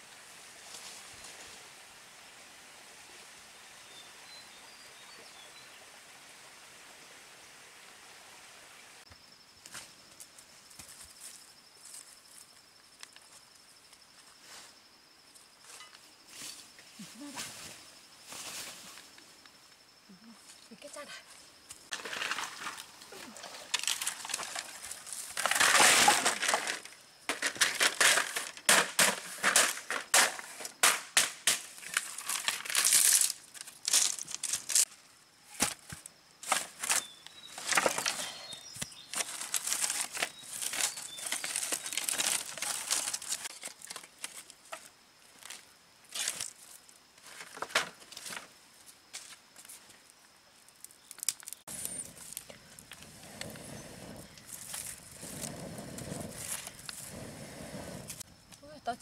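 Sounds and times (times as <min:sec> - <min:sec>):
dry leaves and twigs rustling: 0:15.6 - 0:19.5, 0:20.3 - 0:57.1
wood cracking and clattering: 0:23.6 - 0:34.8, 0:37.6 - 0:38.2.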